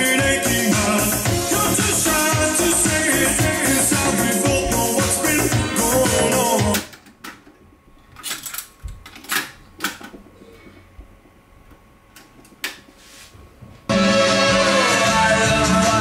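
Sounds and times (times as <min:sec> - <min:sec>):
music playing from tape: 0:00.0 - 0:06.9, 0:13.9 - 0:16.0.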